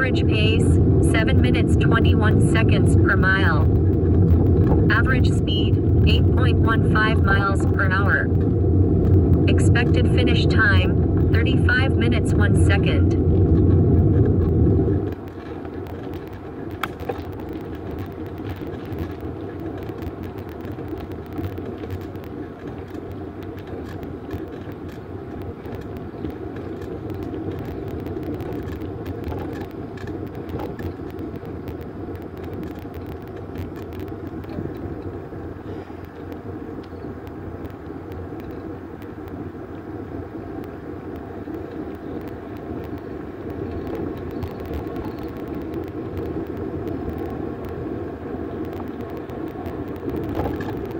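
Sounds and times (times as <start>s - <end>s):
bike tyres rolling on asphalt: 0.8s - 11.8s, 13.1s - 50.9s
small rattles and ticks: 3.7s - 4.9s, 8.3s - 9.5s, 13.2s - 50.9s.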